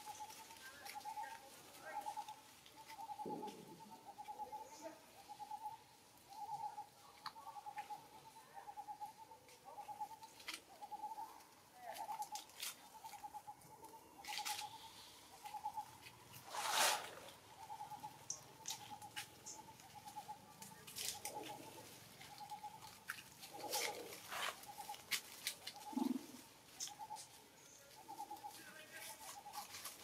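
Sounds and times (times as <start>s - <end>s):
dry leaves rustling: 0.0s - 3.0s, 15.9s - 30.0s
crunching rustle of leaf litter: 28.5s - 30.0s.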